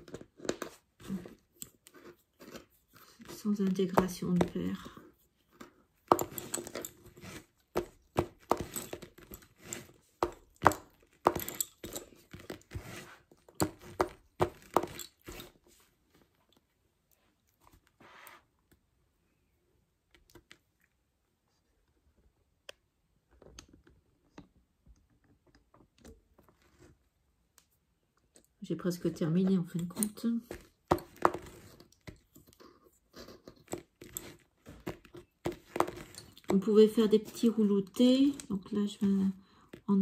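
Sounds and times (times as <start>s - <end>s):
lace bobbins clicking: 0.0s - 15.6s, 33.6s - 40.0s.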